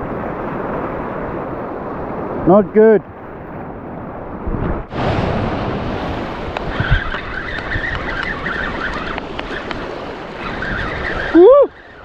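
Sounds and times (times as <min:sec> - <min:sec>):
surf on rocky reef: 0:00.0 - 0:12.0
wind buffeting microphone: 0:00.0 - 0:12.0
fishing reel whirring: 0:06.7 - 0:12.0.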